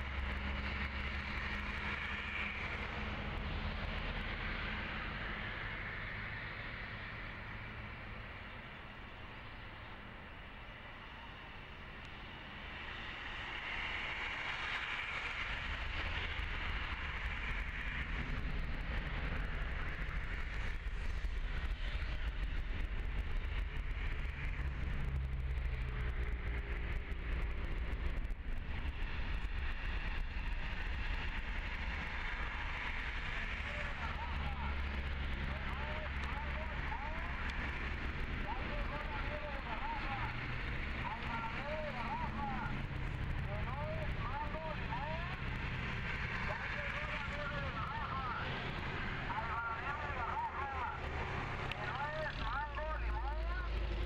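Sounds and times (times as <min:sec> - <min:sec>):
jet engines running: 0:00.0 - 0:54.0
deep rumble: 0:15.4 - 0:54.0.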